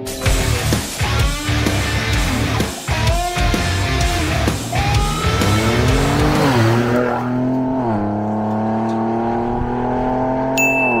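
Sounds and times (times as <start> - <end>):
vehicle engine revving: 1.4 - 10.6
bright chime: 10.6 - 11.0.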